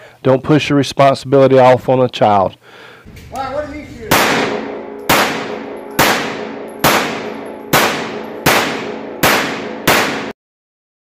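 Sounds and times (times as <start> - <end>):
pistol shots echoing indoors: 4.1 - 10.3.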